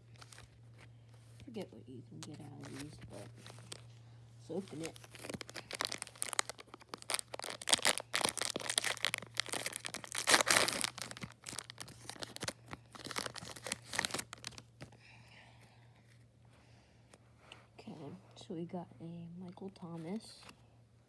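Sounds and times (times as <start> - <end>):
foil wrapper tearing and crinkling: 2.5 - 3.9, 4.5 - 14.8.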